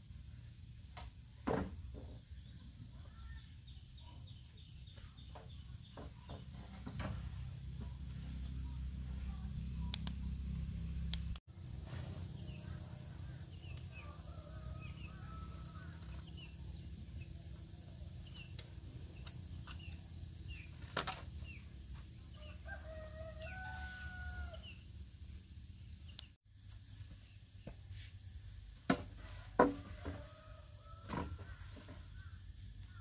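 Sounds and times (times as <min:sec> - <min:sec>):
sharp clicks: 0:09.9 - 0:10.2.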